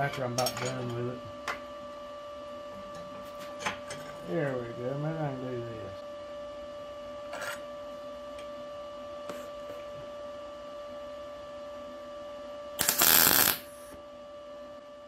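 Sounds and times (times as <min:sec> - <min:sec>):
steady hum: 0:00.0 - 0:15.0
welding arc burst: 0:12.8 - 0:13.9.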